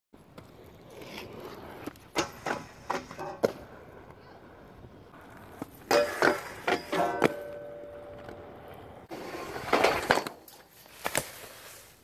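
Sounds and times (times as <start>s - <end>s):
inline skates rolling and clacking: 0.2s - 12.0s
skates landing on metal handrail: 2.1s - 3.6s, 5.5s - 8.5s, 9.6s - 11.3s.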